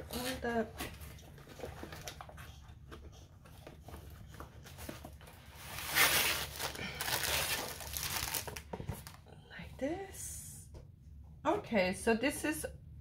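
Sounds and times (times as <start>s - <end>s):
plastic wrapping rustling: 4.6s - 9.2s.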